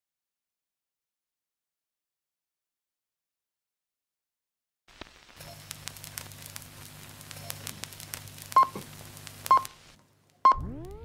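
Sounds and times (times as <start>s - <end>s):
film crackle and pops: 4.9s - 11.0s
low hum: 10.5s - 11.0s.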